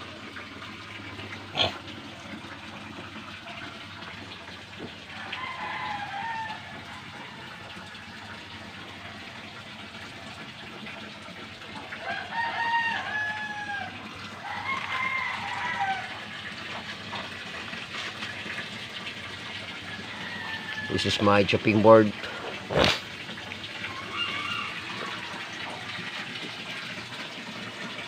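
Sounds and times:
rooster crowing: 5.1s - 8.1s, 12.0s - 16.3s, 19.9s - 21.1s, 23.9s - 25.7s.

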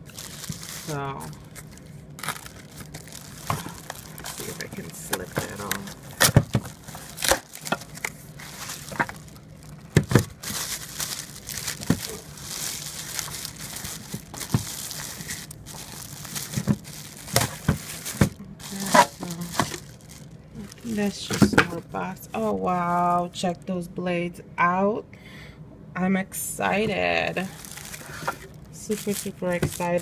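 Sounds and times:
cardboard rustling: 0.0s - 21.8s, 27.5s - 30.0s
plastic wrapping crinkling: 0.0s - 23.6s, 27.4s - 30.0s.

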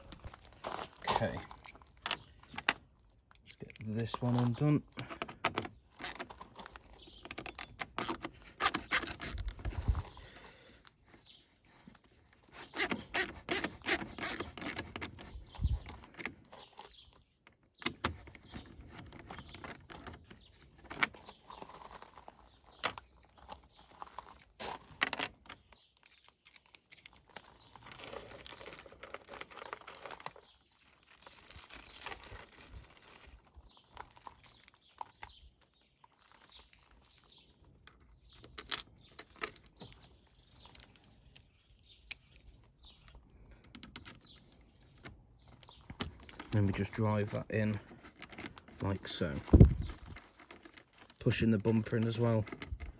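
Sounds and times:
clicks and rustles: 0.0s - 52.9s
screwdriver backing out bolt: 12.8s - 15.2s.

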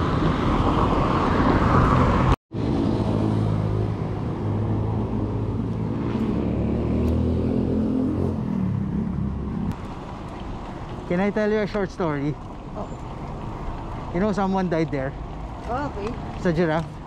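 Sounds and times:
rushing wind: 0.0s - 11.2s
bicycle road noise: 0.0s - 17.0s
motor vehicle engine humming: 2.2s - 17.0s.

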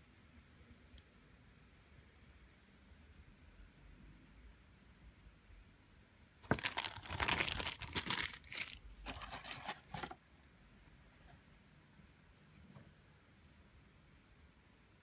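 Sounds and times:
plastic bag crinkling: 6.4s - 10.2s.

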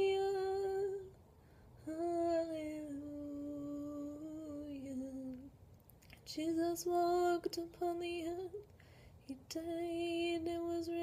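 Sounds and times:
woman singing: 0.0s - 1.2s, 1.8s - 5.5s, 6.2s - 11.0s
breath: 1.4s - 1.8s, 8.7s - 9.2s.

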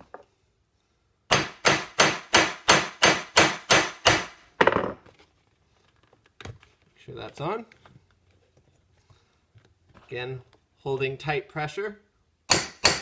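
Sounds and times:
hammer striking metal rivet: 1.3s - 5.0s, 12.5s - 13.0s.

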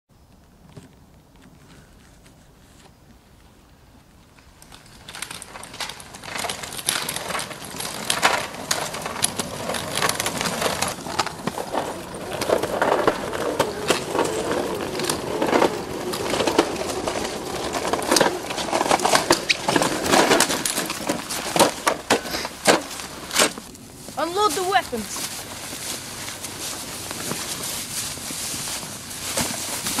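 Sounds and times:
footsteps crunching on gritty snow: 8.5s - 30.0s.

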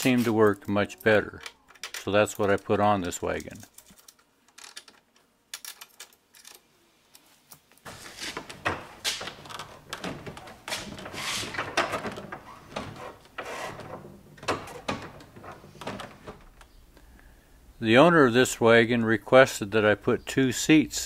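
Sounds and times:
rubber tire rubbing on roller: 11.1s - 11.5s.

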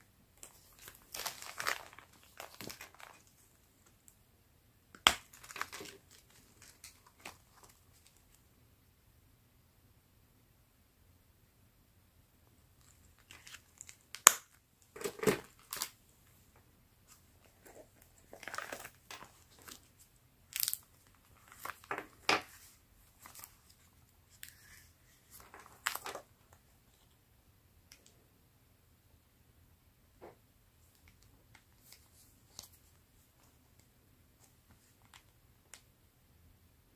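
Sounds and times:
pages turning: 0.4s - 3.5s, 17.1s - 26.3s
plastic and leather covers rustling: 0.4s - 3.6s, 17.1s - 26.3s.

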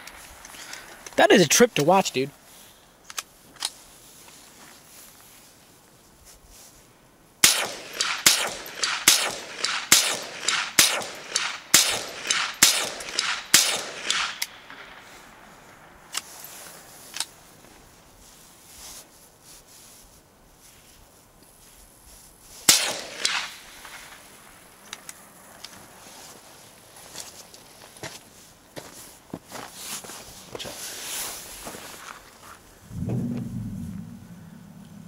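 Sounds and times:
faint gun cracks: 7.4s - 15.2s, 22.7s - 25.8s
rifle shots with echo: 7.4s - 15.5s, 22.7s - 24.8s.

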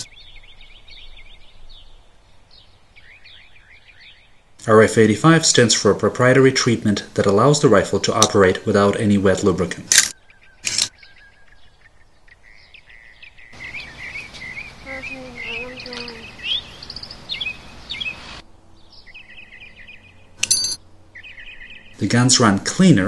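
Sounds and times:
small birds chirping: 0.0s - 4.7s, 10.1s - 23.0s
sharp metallic click: 9.9s - 10.9s, 20.4s - 20.8s.

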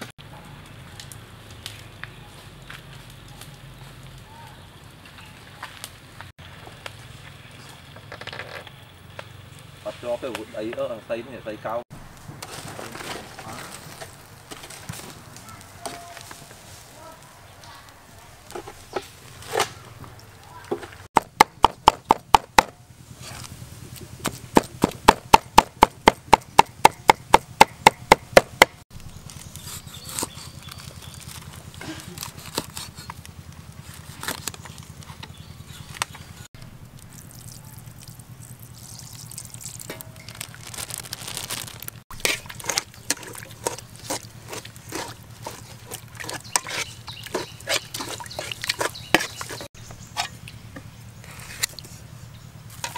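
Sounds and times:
liquid sloshing: 37.0s - 50.6s
metal spoon stirring in pot: 42.1s - 50.4s
knife chopping on wooden board: 42.6s - 49.6s.

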